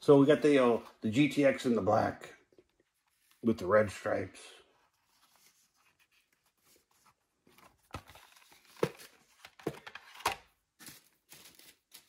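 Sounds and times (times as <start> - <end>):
cardboard rustling: 4.9 - 12.0.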